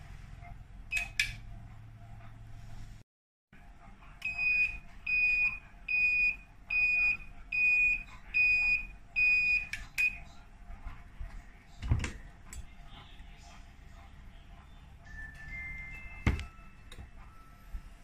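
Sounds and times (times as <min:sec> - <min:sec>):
high timer alarm beeps: 0:04.2 - 0:10.2.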